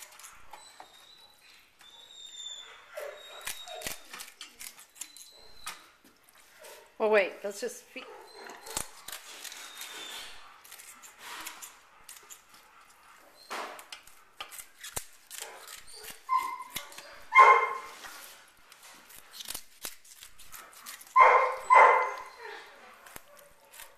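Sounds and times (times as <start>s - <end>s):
dog barking: 17.3s - 18.0s, 21.2s - 22.7s.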